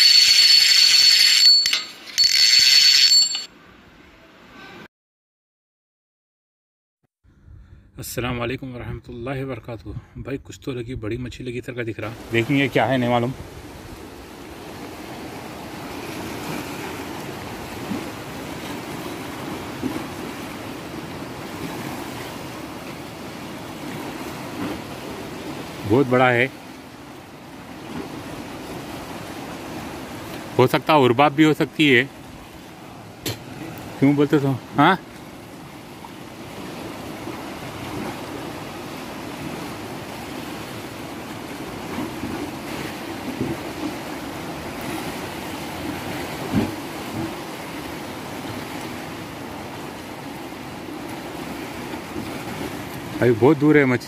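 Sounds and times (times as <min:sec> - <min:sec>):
sea surf washing on shore: 0:12.0 - 0:54.0.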